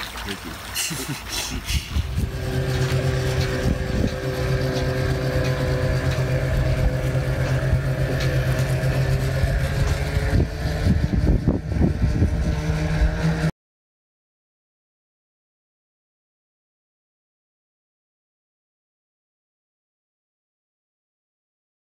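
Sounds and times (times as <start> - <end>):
boat engine idling: 0.0 - 13.5
irregular low thumps: 1.9 - 12.5.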